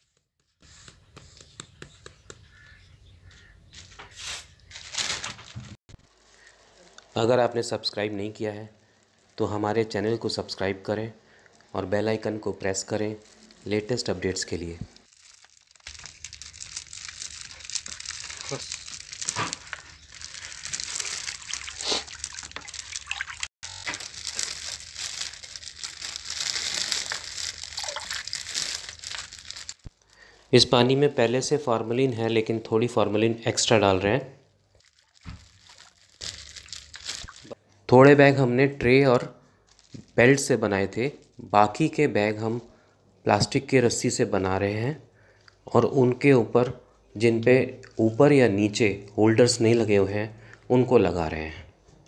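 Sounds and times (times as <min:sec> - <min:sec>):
crow cawing: 0:02.4 - 0:03.8
water swishing in bucket: 0:21.2 - 0:23.5, 0:27.7 - 0:28.4.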